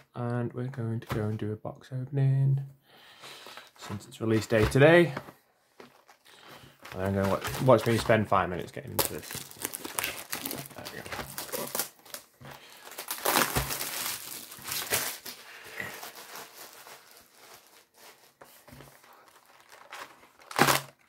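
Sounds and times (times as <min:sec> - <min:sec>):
plastic wrap crinkling and tearing: 0:05.8 - 0:21.0.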